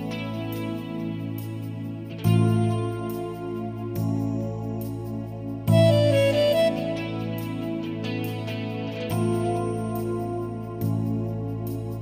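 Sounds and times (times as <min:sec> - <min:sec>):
soft instrumental music with chords: 0:00.0 - 0:12.0.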